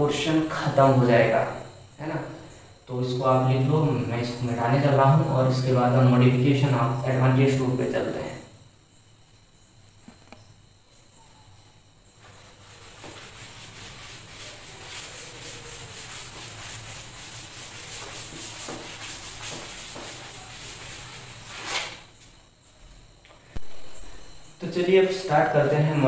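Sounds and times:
cloth wiping a chalkboard: 12.2s - 22.0s.

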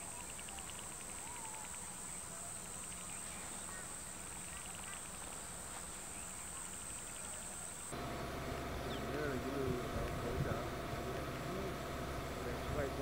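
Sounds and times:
rapid chirping trills: 0.0s - 9.6s
faint bird calls: 0.0s - 13.0s.

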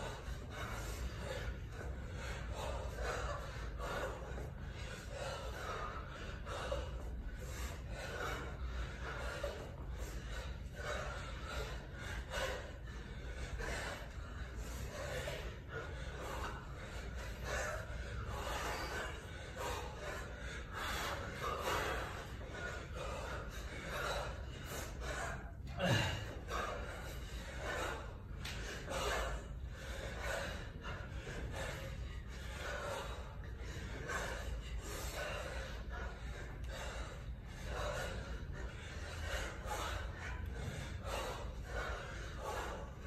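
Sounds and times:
man breathing hard: 0.0s - 43.0s.

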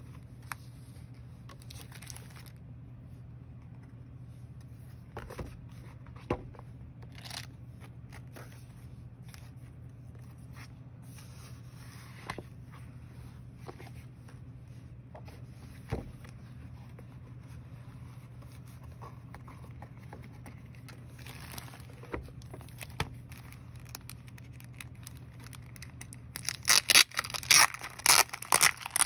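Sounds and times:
wrapping crinkling and tearing: 1.5s - 2.6s, 20.8s - 29.0s.

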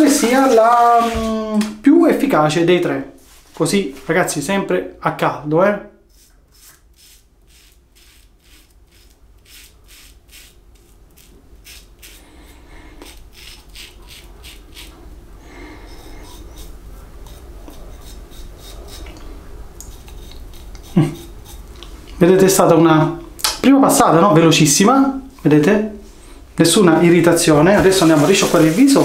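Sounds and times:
razor scraping stubble: 6.1s - 15.1s, 15.7s - 22.1s.

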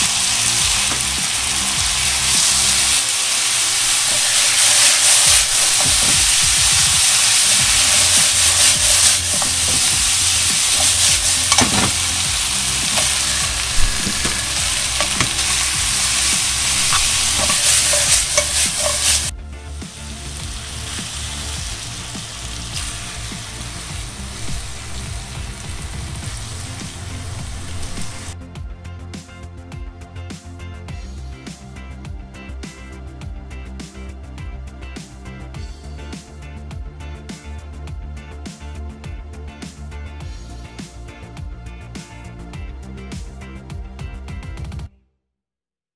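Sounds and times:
meat and onion sizzling in a pan: 0.0s - 28.4s
chopsticks clicking: 12.8s - 19.3s.

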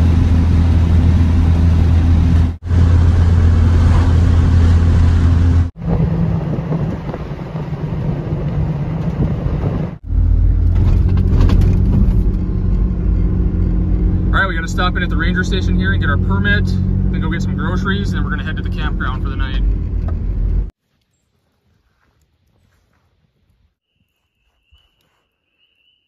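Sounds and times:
car engine and road drone: 0.0s - 20.8s.

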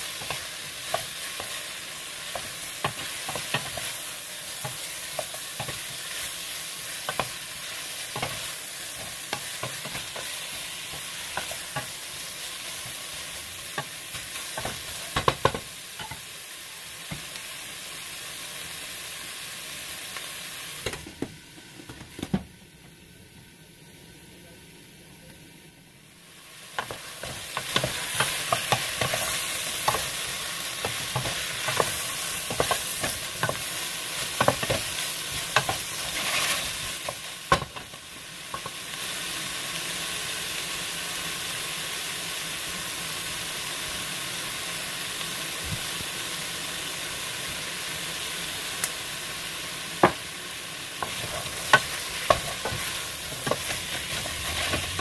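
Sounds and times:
food sizzling in a pot: 0.0s - 55.0s
wooden spoon scraping a pot: 34.3s - 37.2s, 51.0s - 55.0s.

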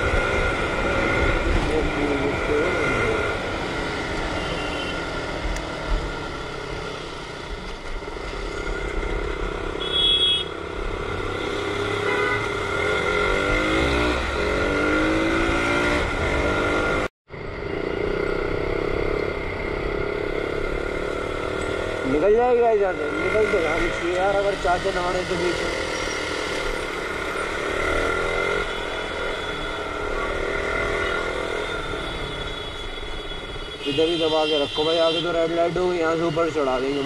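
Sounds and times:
motorcycle engine accelerating: 10.7s - 22.3s.

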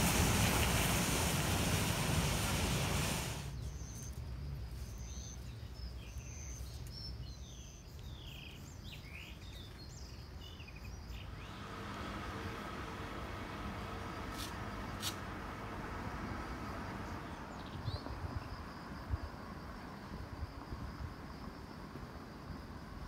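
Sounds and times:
bus engine pulling away: 0.0s - 3.5s, 11.1s - 19.0s
birds chirping: 4.8s - 13.4s.

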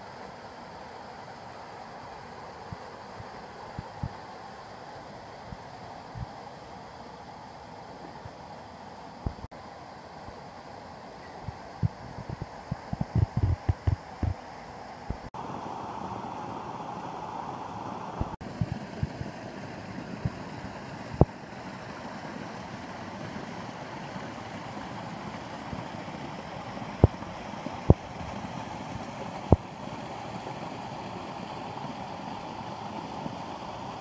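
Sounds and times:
sharp thumps: 12.9s - 14.4s.

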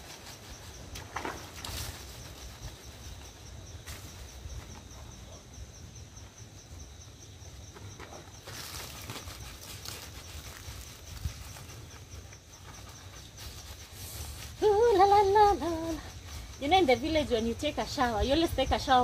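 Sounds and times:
rustling and splashing: 0.0s - 4.4s, 7.9s - 17.3s
insect trilling: 0.0s - 19.0s
wind rumble on microphone: 14.3s - 19.0s.

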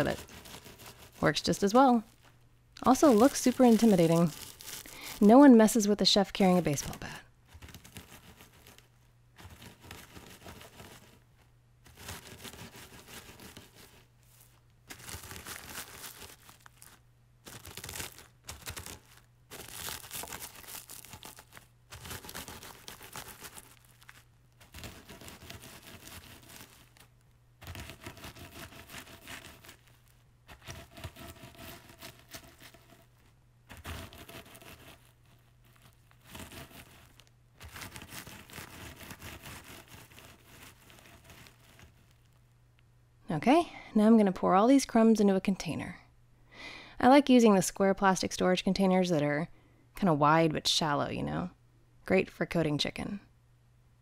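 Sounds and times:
pretzels crunching: 0.0s - 5.8s, 6.4s - 42.5s
plastic bag crinkling: 0.0s - 42.5s.

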